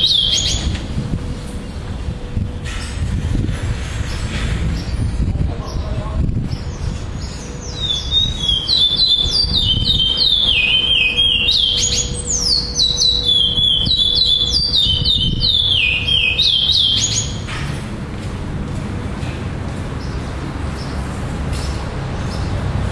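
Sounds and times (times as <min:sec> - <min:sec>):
finch singing whistled notes: 0:00.0 - 0:00.7, 0:06.5 - 0:17.5.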